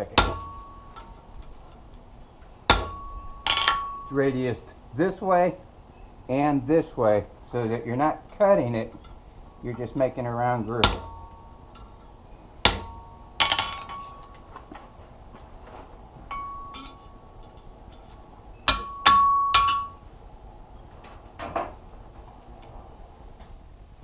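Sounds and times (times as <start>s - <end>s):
hammer striking steel on anvil: 0.0s - 1.1s, 2.7s - 4.2s, 10.7s - 12.0s, 12.6s - 14.4s, 16.3s - 20.8s.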